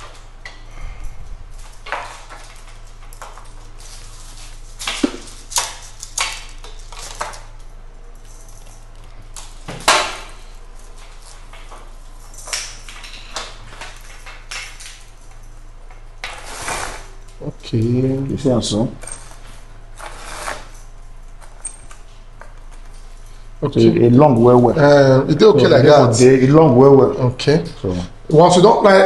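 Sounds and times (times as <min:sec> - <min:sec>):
roller blind clicking and rattling: 0:00.0 - 0:17.5, 0:18.3 - 0:23.4
steady low hum: 0:00.0 - 0:29.0.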